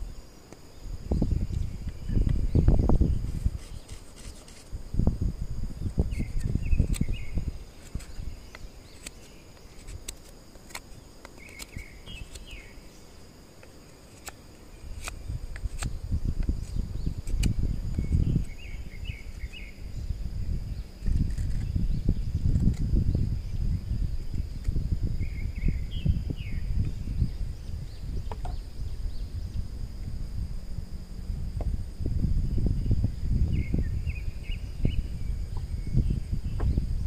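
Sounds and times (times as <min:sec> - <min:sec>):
insects singing high-pitched: 0:00.0 - 0:37.0
sharp clicks: 0:07.8 - 0:12.6.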